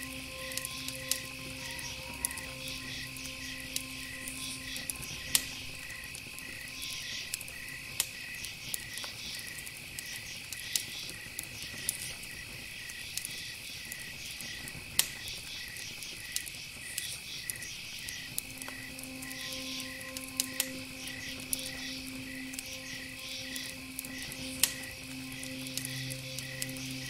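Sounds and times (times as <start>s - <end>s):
steady high tone: 0.0s - 8.8s, 18.3s - 27.0s
low hiss: 0.0s - 9.3s, 18.2s - 27.0s
insect chirping: 0.0s - 27.0s.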